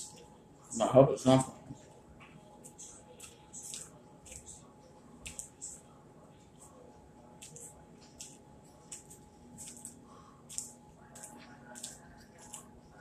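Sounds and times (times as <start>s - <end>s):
faint steady hum: 0.0s - 13.0s
person chewing food: 7.3s - 13.0s.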